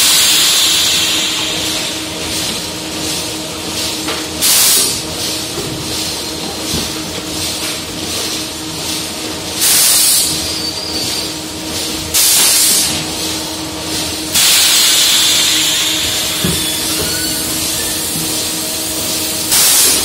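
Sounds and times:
compressed air hisses: 0.0s - 2.1s, 9.6s - 10.3s, 12.2s - 12.9s, 14.3s - 20.0s.

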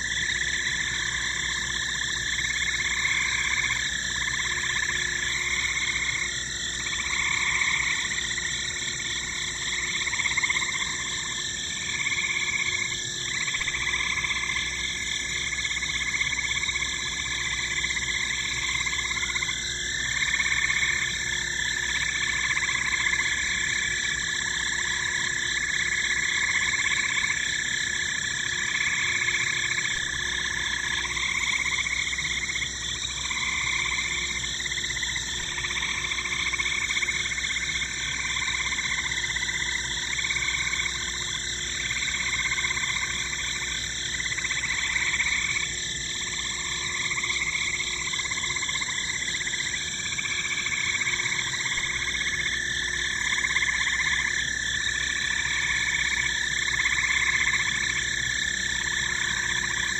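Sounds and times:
frogs croaking: 0.0s - 59.9s.

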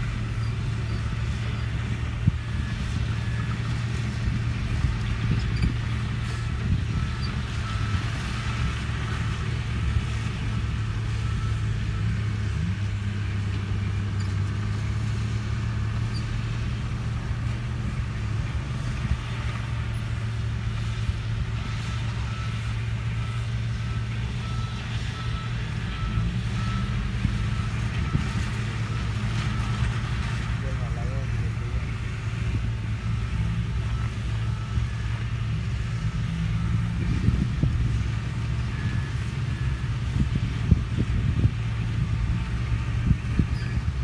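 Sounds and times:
bulldozer diesel engines: 0.0s - 44.0s
dump truck running: 0.0s - 44.0s
reversing alarm beeping: 33.8s - 35.2s.

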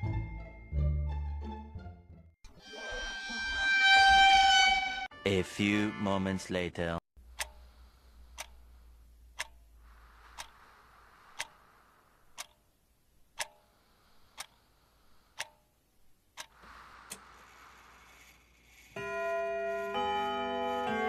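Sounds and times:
wall clock ticking: 7.2s - 17.2s.

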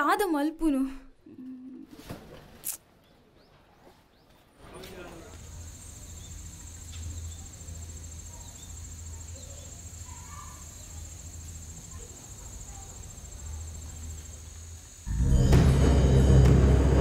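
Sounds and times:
crickets chirring: 5.2s - 15.2s.

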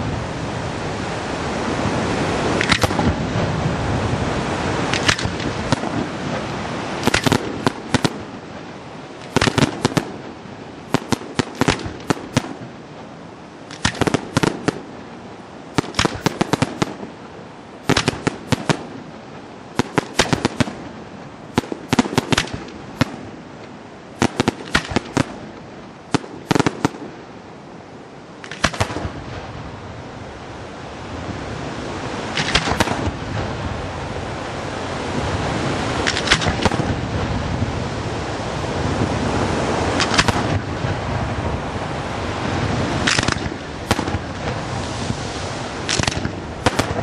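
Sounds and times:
fireworks bangs and cracks: 2.4s - 3.8s, 4.7s - 8.4s, 9.2s - 12.8s, 13.7s - 15.0s, 15.7s - 17.2s, 17.8s - 19.0s, 19.8s - 23.3s, 24.2s - 25.5s, 26.1s - 27.2s, 32.4s - 33.6s, 36.0s - 37.7s, 38.8s - 41.2s, 42.5s - 45.2s, 45.8s - 47.0s.

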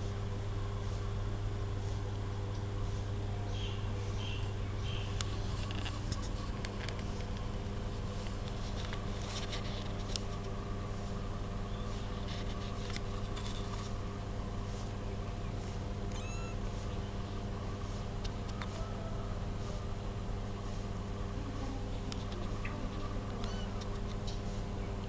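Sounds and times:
kitten mewing: 16.1s - 16.8s, 23.4s - 23.9s.

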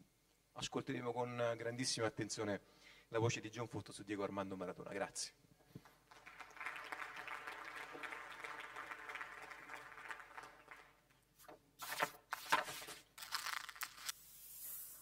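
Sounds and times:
audience applauding: 5.8s - 11.1s
loud rustling handling noise: 11.8s - 14.1s.

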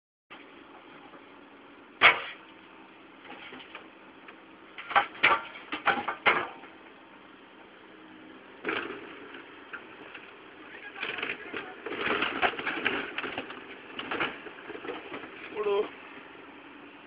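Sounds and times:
excavator engine hum: 0.3s - 17.0s
excavator bucket crashing: 2.0s - 2.4s, 4.8s - 6.8s, 8.6s - 10.1s, 11.0s - 15.4s.

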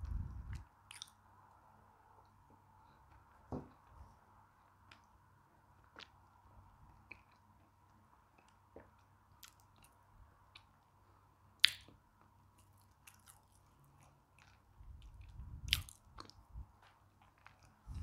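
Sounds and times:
mouth chewing biscuit: 12.6s - 16.5s.

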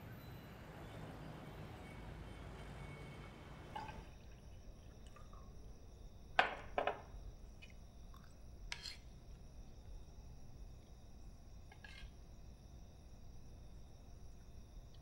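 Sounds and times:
faint high-pitched ringing: 0.0s - 15.0s
glass clinking on table: 3.7s - 4.1s, 6.4s - 7.0s.

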